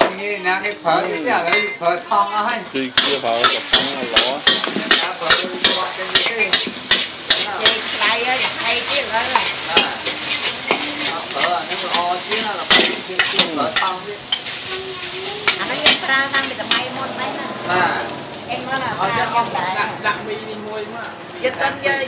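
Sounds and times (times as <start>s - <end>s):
noodles sizzling: 0.0s - 22.0s
metal ladles clanking on wok: 3.0s - 14.7s, 15.4s - 17.0s.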